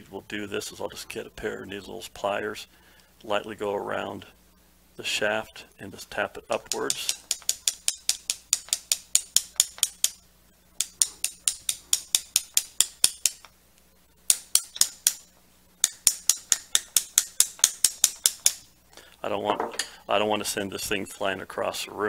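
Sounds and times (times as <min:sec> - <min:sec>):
pliers tapping on metal: 0:06.5 - 0:10.2, 0:10.8 - 0:13.5, 0:14.3 - 0:18.6.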